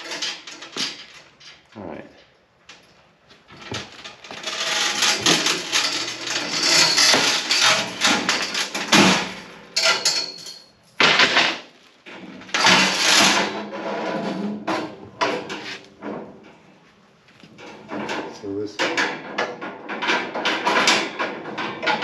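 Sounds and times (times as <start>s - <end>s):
plastic wrap crinkling: 11.7s - 12.1s.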